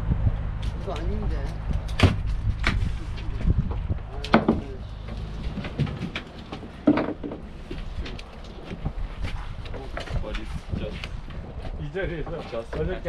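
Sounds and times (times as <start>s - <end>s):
knocks and clunks on deck: 3.6s - 9.0s
boat engine humming: 4.0s - 9.9s.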